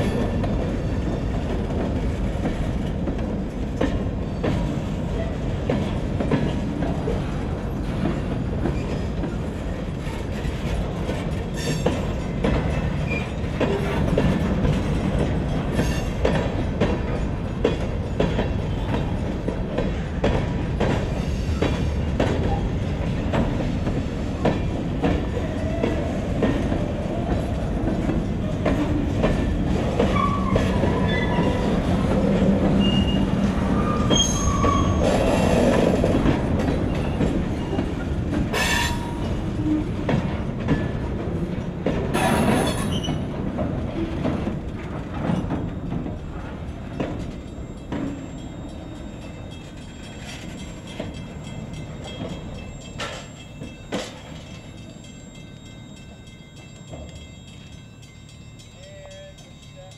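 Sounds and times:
steel wheels rumbling on rails: 0:00.0 - 0:59.9
wheel squeals: 0:29.5 - 0:32.0, 0:32.7 - 0:36.0, 0:42.2 - 0:43.3.

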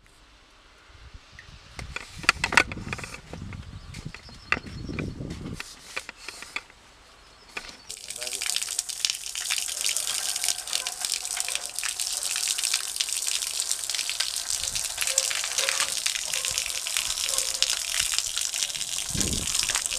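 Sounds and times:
water splashing onto asphalt: 0:07.6 - 0:19.9.

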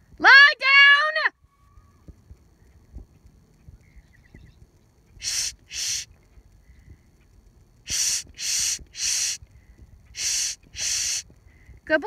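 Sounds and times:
person hissing shh: 0:05.2 - 0:06.1, 0:07.9 - 0:09.4, 0:10.1 - 0:11.3.

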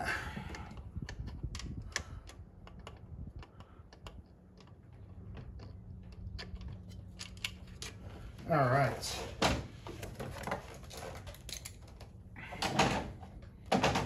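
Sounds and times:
metallic clicks of tools and bolts: 0:00.5 - 0:08.0, 0:10.9 - 0:12.1.

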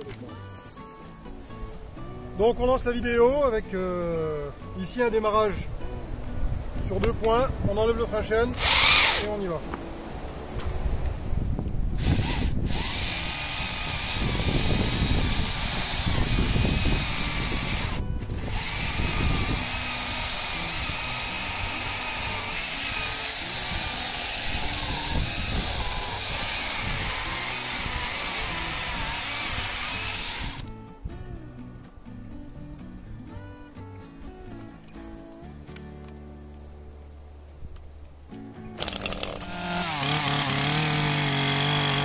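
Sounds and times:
chainsaw cutting log: 0:08.5 - 0:09.4, 0:12.0 - 0:30.7, 0:38.8 - 0:42.0.

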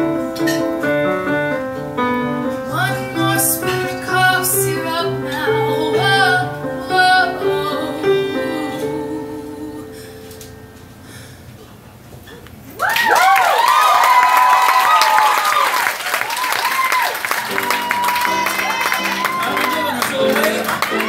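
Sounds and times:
piano accompaniment: 0:00.0 - 0:11.5, 0:17.0 - 0:21.0
woman singing pop ballad: 0:02.7 - 0:10.1.

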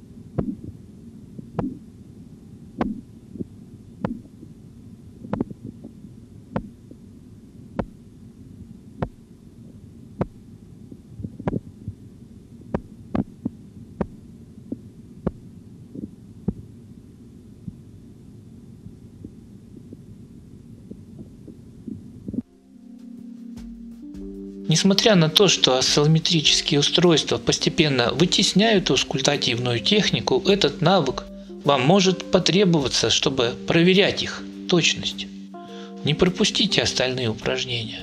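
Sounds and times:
low steady rumble: 0:00.0 - 0:22.9
heartbeat taps through stethoscope: 0:00.4 - 0:00.8, 0:01.4 - 0:01.8, 0:02.8 - 0:04.3, 0:05.3 - 0:06.0, 0:06.6 - 0:06.8, 0:09.0 - 0:09.2, 0:11.2 - 0:12.0, 0:12.7 - 0:15.4.

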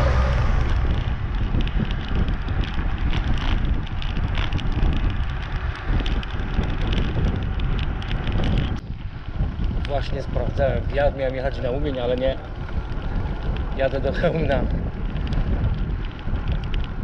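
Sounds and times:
car passing: 0:00.0 - 0:03.3
light ticks and rattles: 0:00.0 - 0:17.0
wind buffeting microphone: 0:00.0 - 0:17.0.

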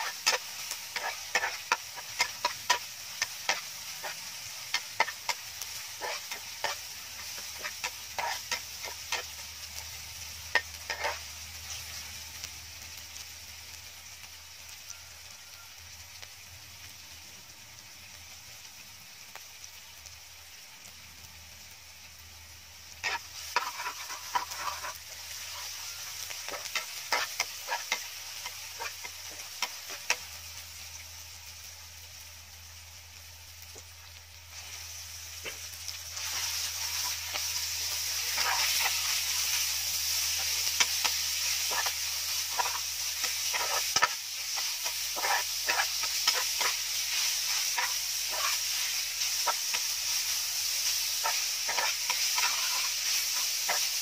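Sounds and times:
metal spatula scraping pan: 0:00.0 - 0:09.3, 0:10.5 - 0:11.2, 0:23.0 - 0:30.2, 0:38.2 - 0:39.6, 0:40.3 - 0:50.0, 0:51.1 - 0:54.0
food frying in oil: 0:00.0 - 0:54.0
meat sizzling in a pan: 0:00.0 - 0:54.0.

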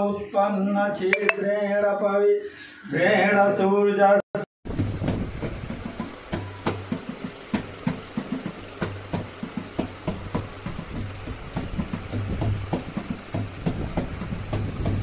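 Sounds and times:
barrel drum played by hand: 0:04.7 - 0:15.0.

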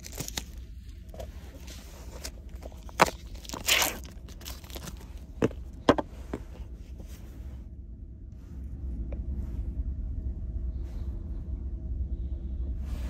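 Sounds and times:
plastic wrapper crinkling: 0:00.0 - 0:00.6, 0:01.5 - 0:05.2
steady low rumble: 0:00.0 - 0:13.0.

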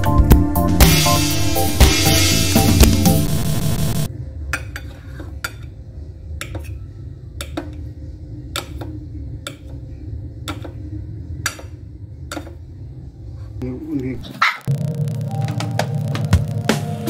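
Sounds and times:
background music: 0:00.0 - 0:04.1, 0:14.7 - 0:17.0.

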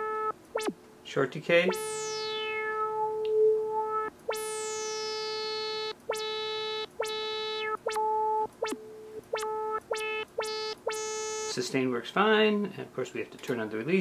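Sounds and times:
synthesizer repeated note: 0:01.6 - 0:11.6.

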